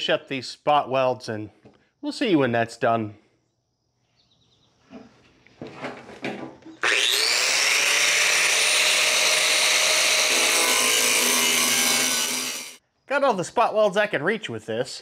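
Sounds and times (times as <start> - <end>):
power grinder whining: 6.7 - 12.8.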